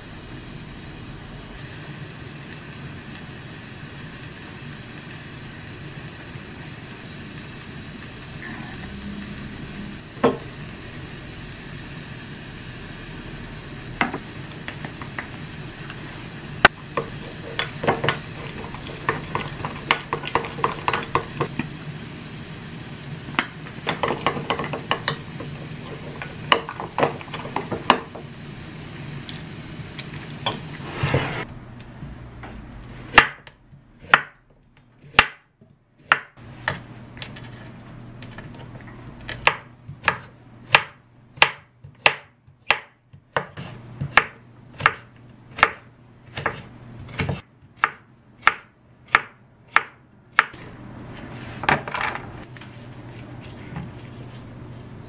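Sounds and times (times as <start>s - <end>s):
steady low hum: 0.0s - 55.0s
knife chopping on cutting board: 33.1s - 34.4s, 35.0s - 36.8s, 39.4s - 50.6s.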